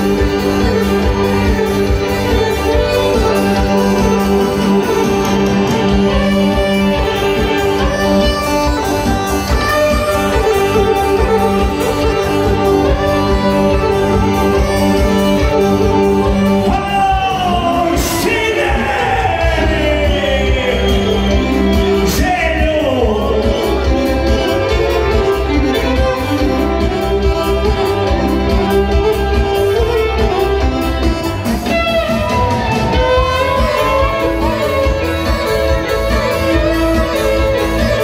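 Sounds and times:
live band playing folk dance music: 0.0s - 38.0s
person singing: 16.6s - 25.2s.

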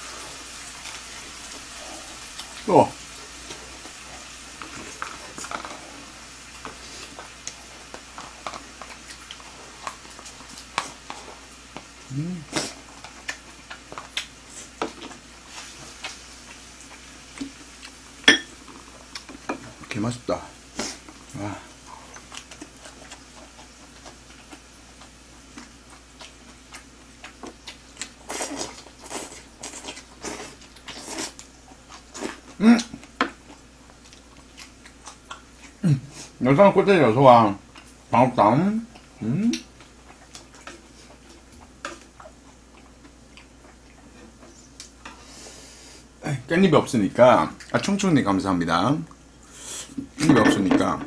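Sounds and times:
eating and slurping: 0.0s - 18.0s, 20.7s - 36.4s, 49.4s - 50.0s
chewing with wet mouth clicks: 12.5s - 14.4s, 18.7s - 19.4s, 22.0s - 35.8s, 38.9s - 45.0s
faint hiss: 49.4s - 50.0s.

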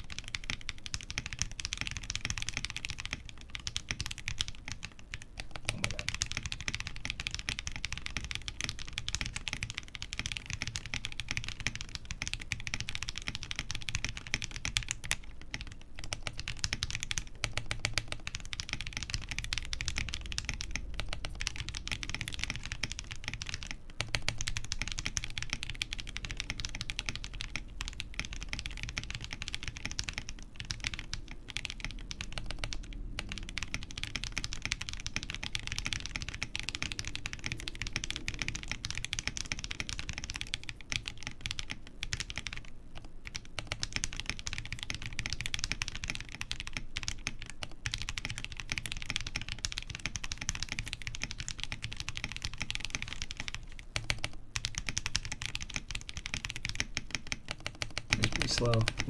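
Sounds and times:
typing on mechanical keyboard: 0.0s - 59.0s.

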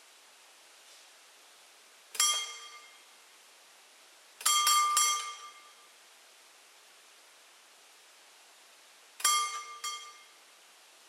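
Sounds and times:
mechanical warning bell ringing: 2.2s - 3.0s, 4.4s - 5.8s, 9.2s - 10.4s.

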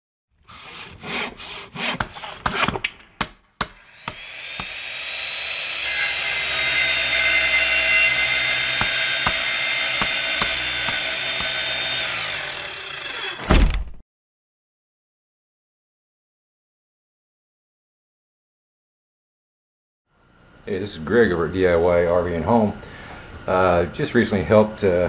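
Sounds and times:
rasping sawing noise with whine: 0.5s - 2.8s, 3.8s - 13.5s
sharp knocks: 8.7s - 11.7s.

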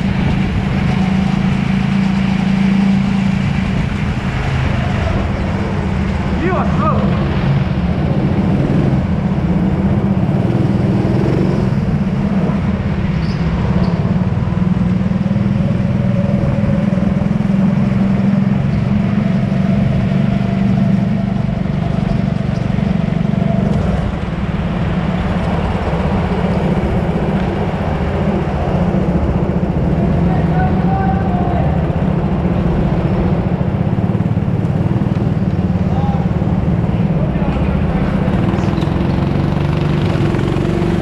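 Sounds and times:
go-kart engine racing: 0.0s - 41.0s.

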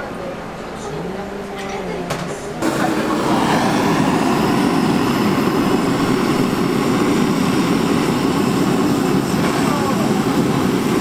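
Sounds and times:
blowtorch hissing flame: 2.6s - 11.0s.

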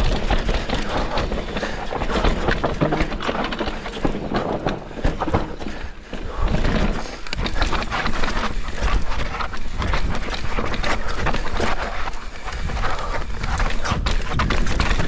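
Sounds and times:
bike rattling and knocking: 0.0s - 15.0s
tyres crunching over dirt and stones: 0.0s - 15.0s
wind rumble on microphone: 6.3s - 15.0s.

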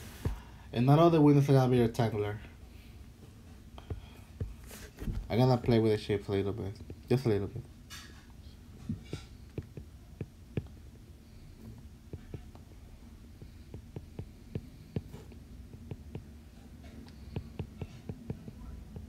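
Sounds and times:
low room hum: 0.0s - 19.0s
stylus tapping on glass screen: 8.9s - 10.8s, 17.2s - 19.0s.

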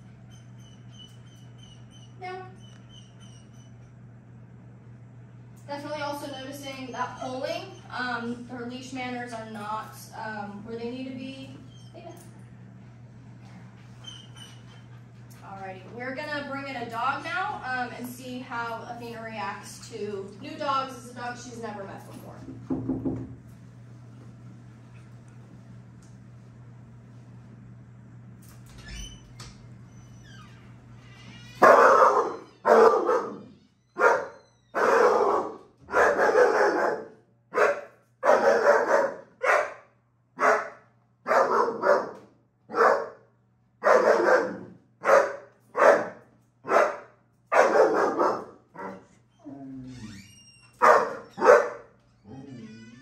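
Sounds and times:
dog barking: 31.6s - 43.2s, 43.8s - 49.0s, 50.8s - 51.9s.

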